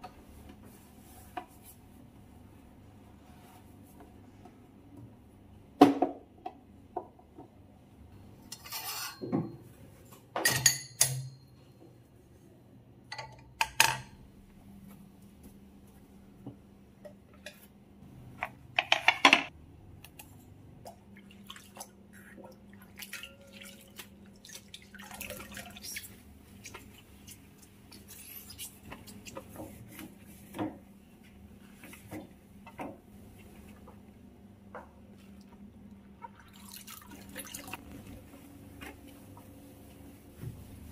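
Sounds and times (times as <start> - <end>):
cloth wiping a counter: 0.3 - 4.4, 25.8 - 32.2, 38.0 - 40.9
kitchen items knocking and clattering: 18.4 - 19.5.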